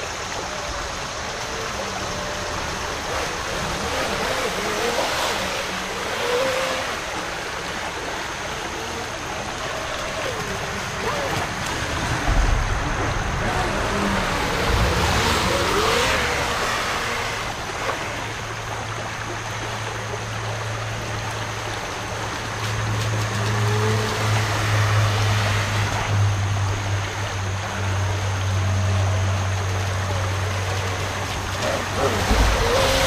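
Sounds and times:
toy boat motor whining: 0:00.0 - 0:12.0, 0:13.8 - 0:20.2, 0:28.8 - 0:33.0
creek water rippling over rocks: 0:00.0 - 0:33.0.

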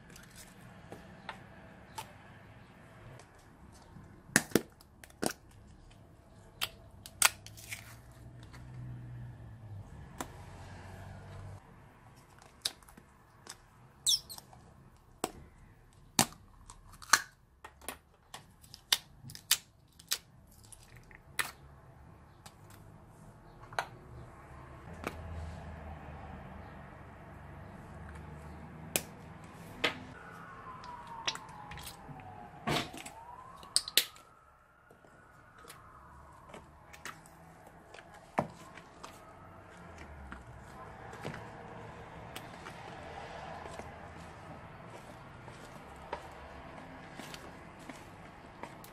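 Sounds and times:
plastic tub clicks and pops: 0:33.0 - 0:34.2.

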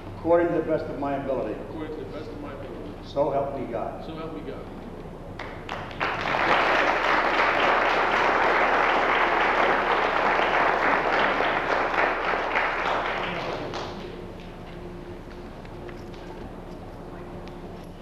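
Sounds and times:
audience applauding: 0:05.4 - 0:14.5.

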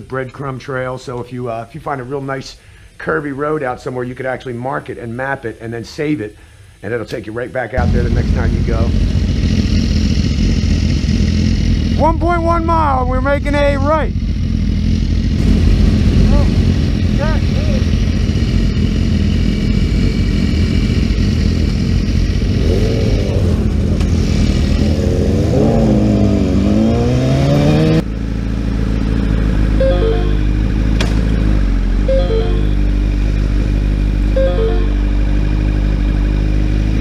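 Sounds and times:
motorcycle engine revving: 0:07.8 - 0:37.0
electronic phone ring: 0:29.8 - 0:30.6, 0:32.1 - 0:33.0, 0:34.4 - 0:35.1.

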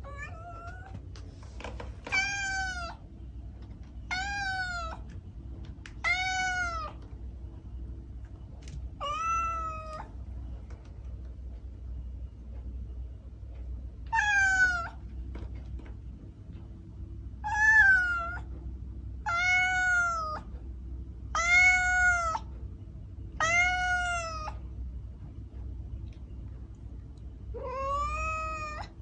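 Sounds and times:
kitten meowing: 0:27.6 - 0:28.9.

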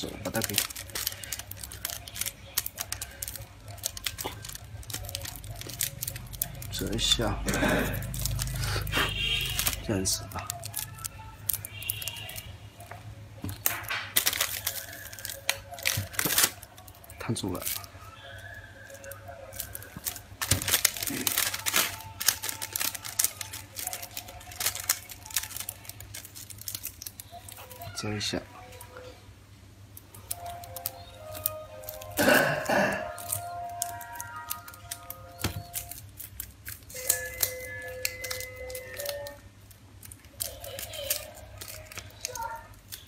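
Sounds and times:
plastic film crinkling: 0:00.0 - 0:29.1, 0:29.9 - 0:43.0
background music with held notes: 0:30.1 - 0:36.0.

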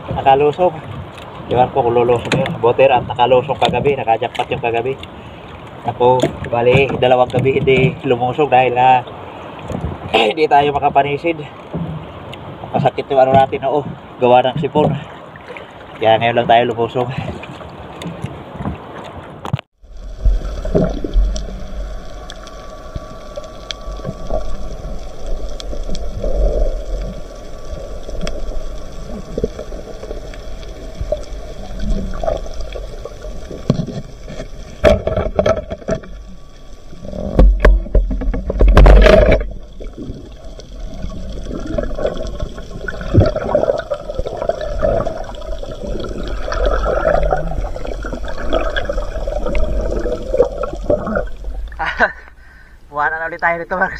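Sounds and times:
clicks underwater: 0:16.9 - 0:36.4, 0:37.0 - 0:52.4
water gurgling bursts: 0:19.8 - 0:53.7
muffled underwater rumble: 0:19.8 - 0:53.9.

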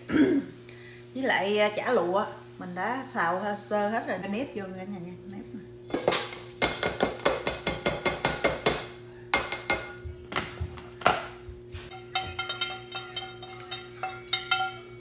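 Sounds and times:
colander tapping metal pot: 0:05.9 - 0:10.2, 0:11.9 - 0:15.0
metal clinks and scraping: 0:11.9 - 0:15.0.

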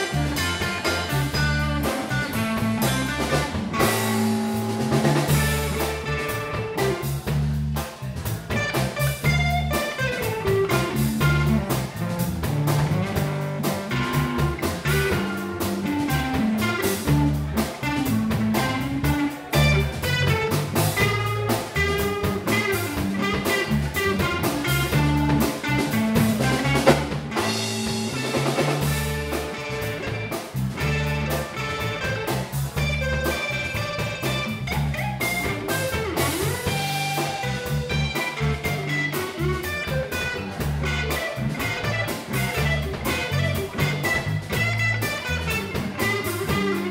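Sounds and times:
electric guitar solo: 0:00.0 - 0:07.3, 0:08.4 - 0:46.9
bass guitar line: 0:00.0 - 0:46.9
drum kit: 0:00.0 - 0:46.9.

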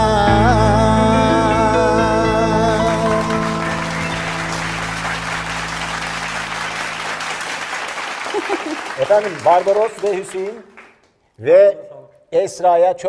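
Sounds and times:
band closing chord with cello: 0:00.1 - 0:07.5
applause: 0:02.8 - 0:11.2.

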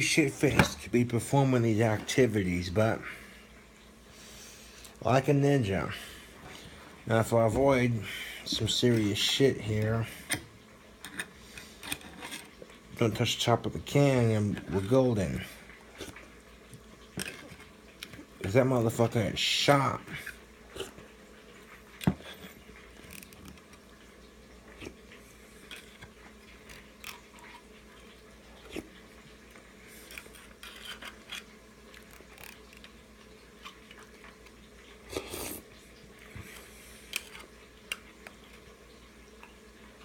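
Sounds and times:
quiet chewing: 0:24.6 - 0:38.6
fork scraping tin can: 0:30.1 - 0:31.5.

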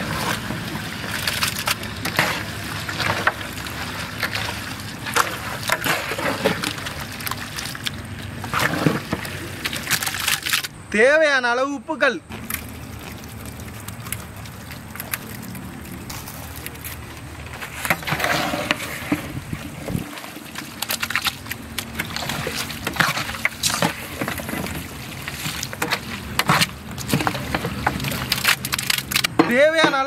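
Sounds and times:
scraping and knocking in a pot: 0:00.0 - 0:10.2, 0:17.3 - 0:30.0.

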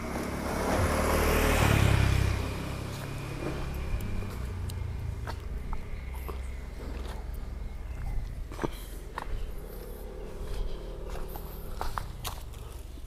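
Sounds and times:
vehicle passing by: 0:00.0 - 0:13.0.

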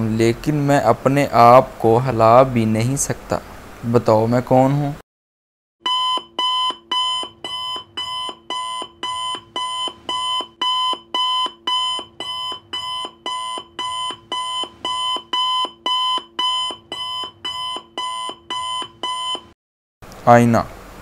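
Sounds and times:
electronic alarm tone pulsing: 0:05.8 - 0:19.5.

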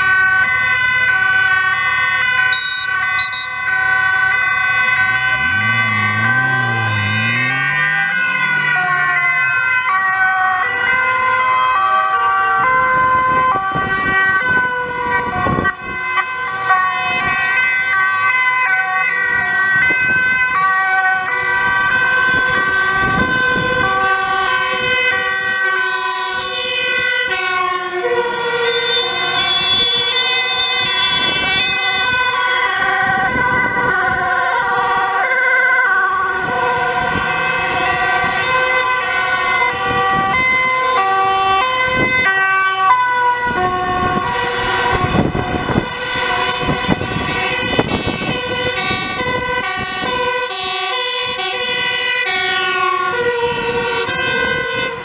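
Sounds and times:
emergency vehicle sirens: 0:00.0 - 0:55.0.

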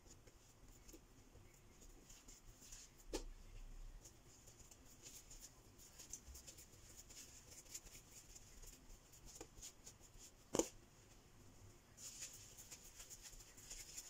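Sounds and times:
hands rolling dough on countertop: 0:11.9 - 0:14.0.

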